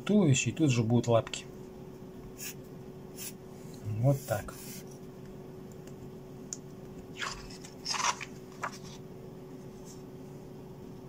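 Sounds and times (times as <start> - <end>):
faint steady hum: 0.0 - 11.0
paper rustling: 7.2 - 9.0.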